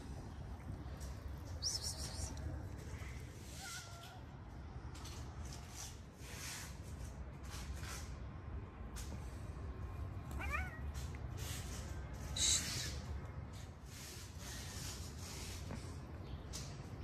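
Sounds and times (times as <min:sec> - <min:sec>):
cat meowing: 0:03.4 - 0:04.3, 0:10.3 - 0:11.0.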